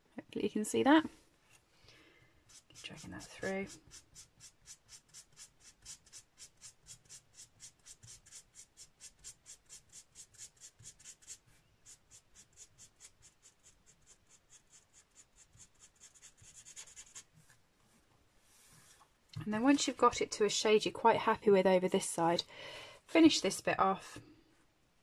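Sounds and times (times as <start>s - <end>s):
marker scratching on cardstock: 2.4s - 17.3s.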